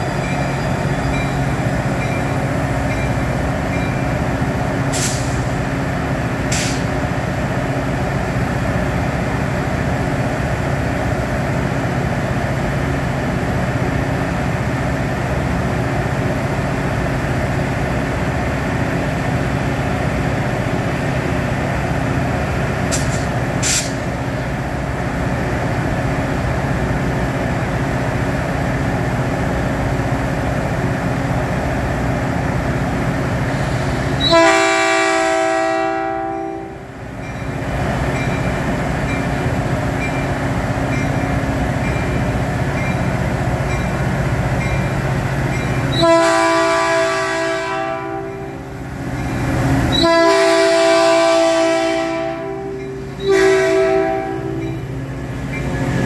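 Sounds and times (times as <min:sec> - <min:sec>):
diesel locomotive running: 0:00.0 - 0:56.0
multi-tone train horn blasts: 0:34.2 - 0:37.0, 0:45.9 - 0:48.8, 0:49.8 - 0:54.9.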